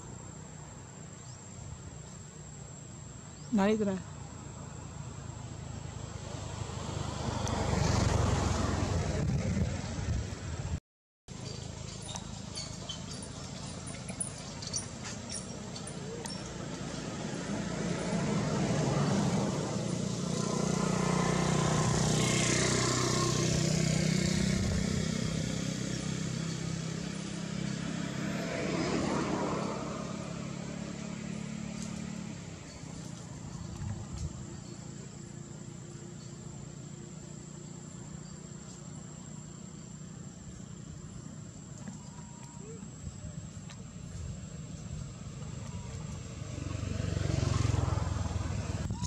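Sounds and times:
vehicle engine running: 29.6 - 49.0.

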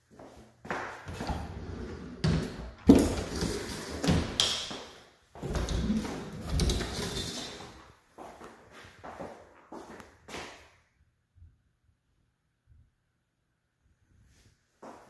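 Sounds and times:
closet doors folding and knocking: 1.1 - 4.7, 5.4 - 7.6.

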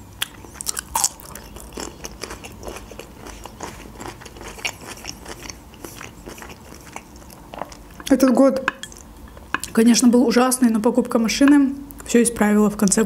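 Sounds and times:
crunching on a pickle: 0.2 - 8.0.

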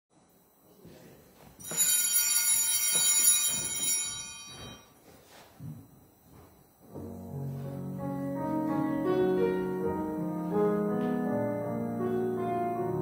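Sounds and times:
small bell ringing: 1.6 - 5.0.

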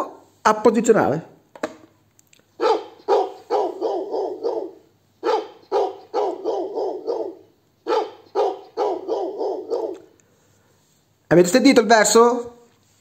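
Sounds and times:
recorded dog barking from toy speaker: 2.6 - 10.1.

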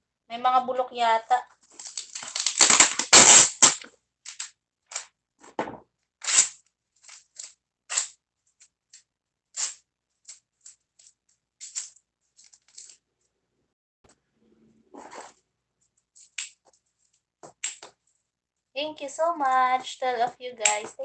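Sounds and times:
paper tearing: 1.7 - 5.1, 6.2 - 8.2, 9.6 - 10.4
scissors snipping paper: 1.8 - 5.1, 6.2 - 13.0, 20.6 - 21.0.

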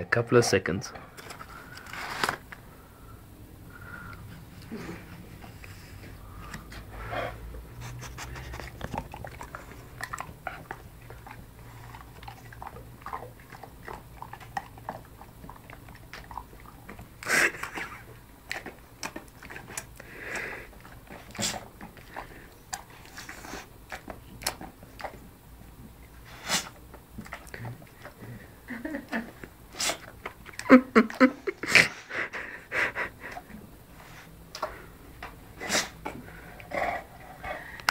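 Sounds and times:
dog crunching chocolate: 1.0 - 2.8, 4.1 - 28.4.

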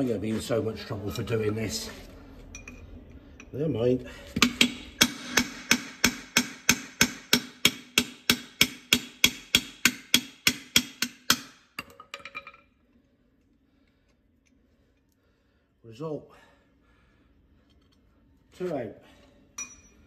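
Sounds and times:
light metal clinks: 2.5 - 3.6, 19.6 - 20.0.

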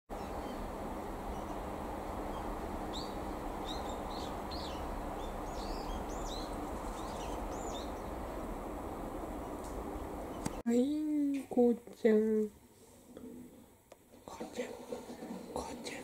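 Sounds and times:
small bird chirping: 0.1 - 8.3, 9.3 - 10.6
low outdoor rumble: 0.1 - 10.6.

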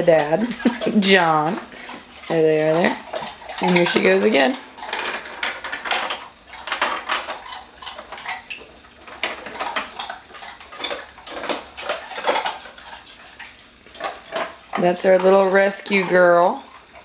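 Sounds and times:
ice cubes clattering in dispenser: 3.6 - 7.4.

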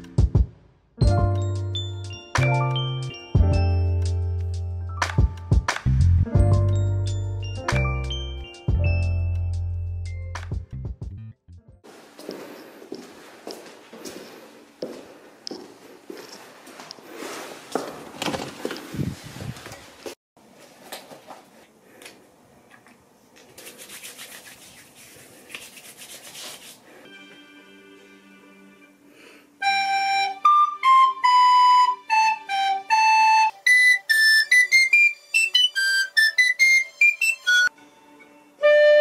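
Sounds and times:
knocks and rustling: 17.7 - 20.1
recorder playing a melody: 29.6 - 37.7, 38.6 - 39.0.

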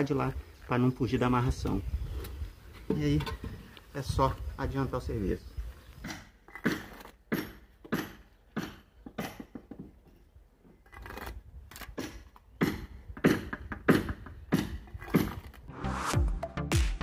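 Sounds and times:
trowel knocking on bricks: 6.1 - 10.1
trowel scraping mortar: 6.4 - 7.4, 10.8 - 12.4.

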